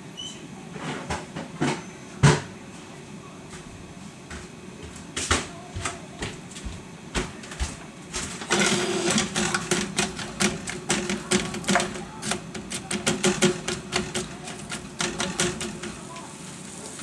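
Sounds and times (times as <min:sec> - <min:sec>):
steady hum: 0:02.2 - 0:17.0
onion sizzling in hot oil: 0:15.8 - 0:17.0.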